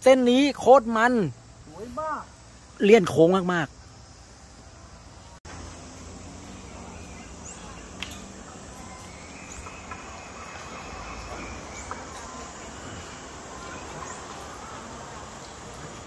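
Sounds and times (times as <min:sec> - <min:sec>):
faint high chirps: 0:04.6 - 0:16.0.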